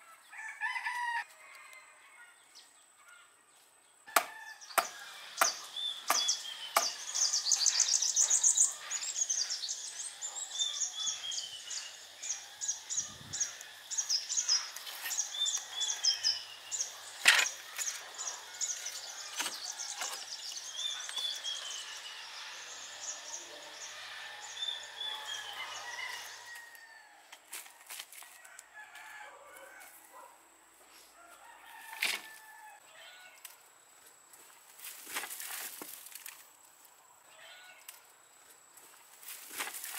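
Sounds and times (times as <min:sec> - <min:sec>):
birds chirping and trilling: 0:02.1 - 0:27.2.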